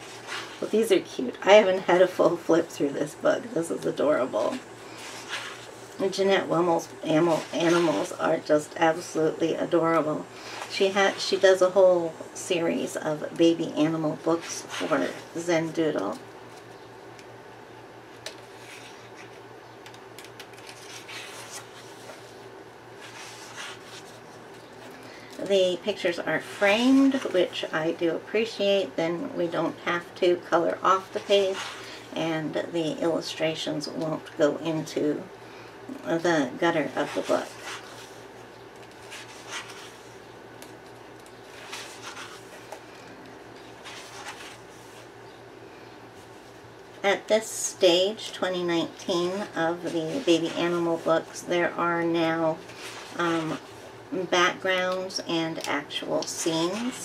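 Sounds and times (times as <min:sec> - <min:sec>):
paper page rustling and turning: 0:00.0 - 0:00.8, 0:04.4 - 0:09.1, 0:13.4 - 0:16.8, 0:18.2 - 0:22.4, 0:23.0 - 0:25.5, 0:36.8 - 0:45.1
faint low hum: 0:00.0 - 0:57.0.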